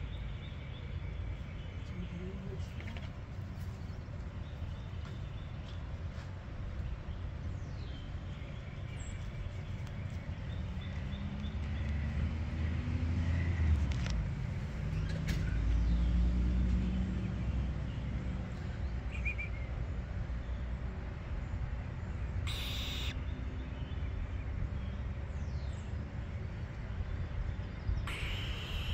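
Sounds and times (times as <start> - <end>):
motor vehicle passing: 10.3 - 19.8
faint bird chirps: 22.5 - 23.2, 28.1 - 28.9.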